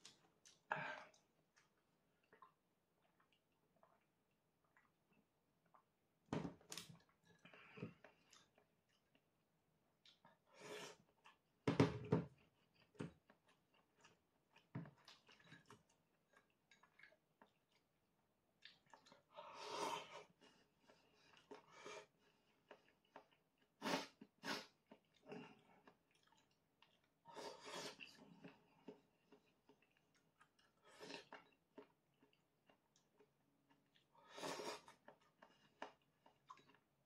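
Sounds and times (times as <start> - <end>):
person chewing and slurping: 18.6 - 36.9.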